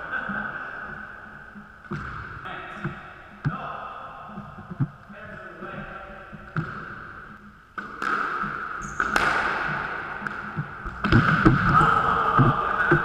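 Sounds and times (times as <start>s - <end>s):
squash ball knocks: 1.8s - 3.6s, 6.4s - 7.2s, 7.8s - 11.8s.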